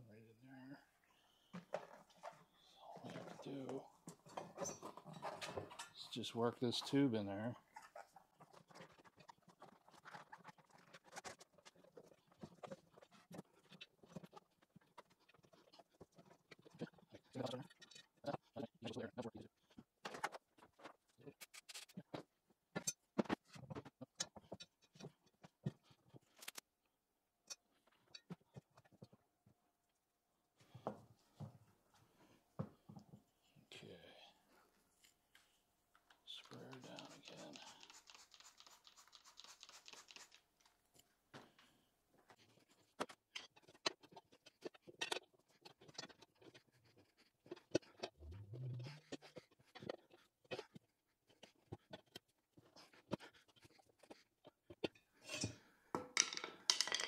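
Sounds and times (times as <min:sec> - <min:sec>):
spray bottle squirting: 0:36.8 - 0:40.4.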